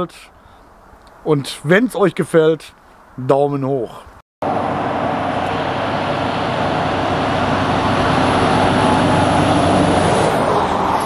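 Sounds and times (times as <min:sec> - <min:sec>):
tyre and road noise: 0:00.0 - 0:11.0
truck engine hum: 0:04.4 - 0:11.0.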